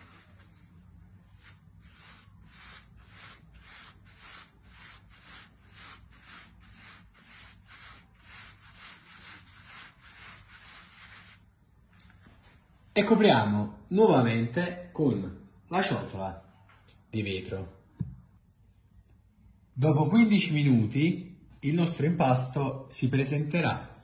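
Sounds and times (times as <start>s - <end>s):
hands rubbing pizza dough: 0.0s - 11.5s.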